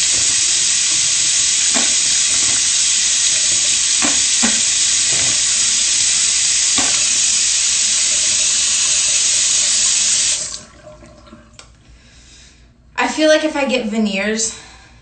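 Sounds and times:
sink tap running: 0:00.0 - 0:11.7.

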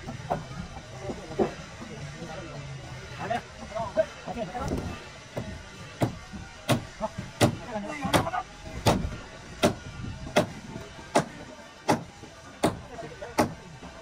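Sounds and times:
hammer blows on wood: 0:05.4 - 0:13.6.

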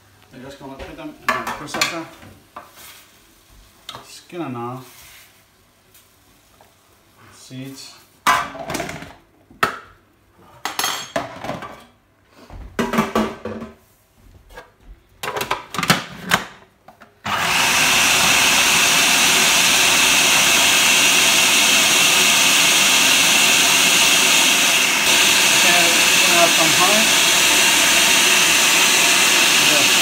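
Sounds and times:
food processor motor whining: 0:17.2 - 0:30.0.

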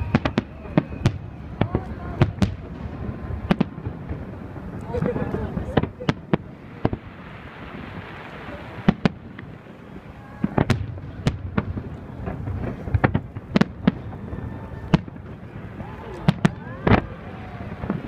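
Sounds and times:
fireworks bursting: 0:00.0 - 0:18.0.

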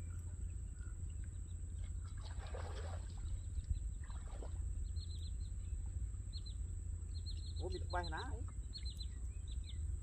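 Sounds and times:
wind rumble on microphone: 0:00.0 - 0:10.0
small bird chirps: 0:04.8 - 0:09.9.

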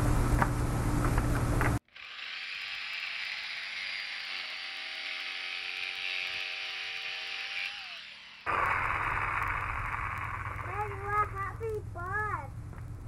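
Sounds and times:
jigsaw cutting plastic pipe: 0:01.9 - 0:11.0.

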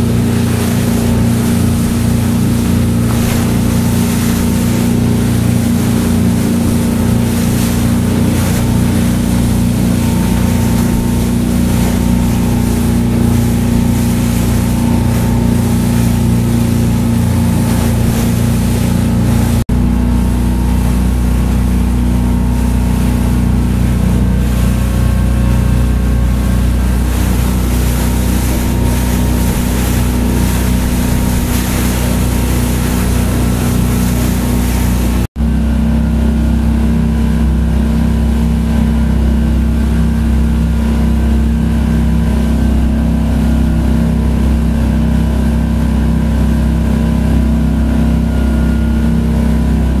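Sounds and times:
motorboat engine running: 0:00.0 - 0:50.0
rushing water: 0:00.0 - 0:50.0
wind on the microphone: 0:20.3 - 0:35.3.

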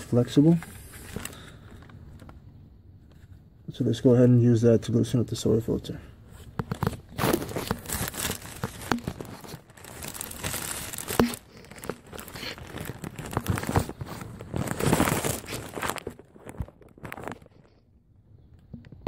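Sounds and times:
rustling crinkling handling noise: 0:00.0 - 0:03.5, 0:06.3 - 0:17.8.

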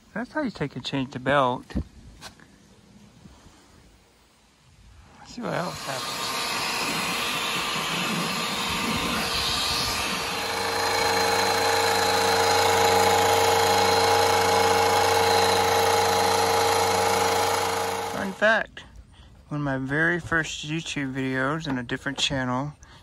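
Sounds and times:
high whine: 0:05.3 - 0:18.4
upright vacuum running: 0:05.3 - 0:18.4.

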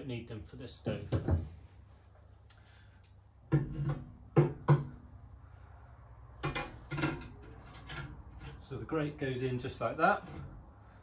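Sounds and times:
cast iron grate knocking: 0:03.5 - 0:05.0
metal leg set on concrete: 0:06.4 - 0:08.8.

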